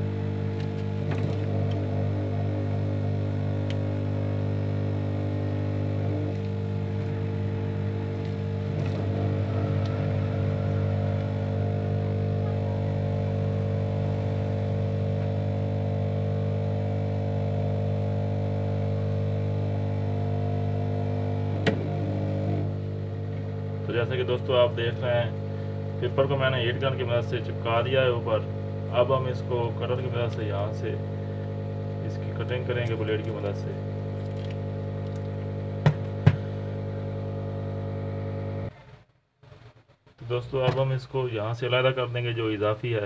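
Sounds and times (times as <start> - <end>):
heat gun fan humming: 0.0 - 38.7.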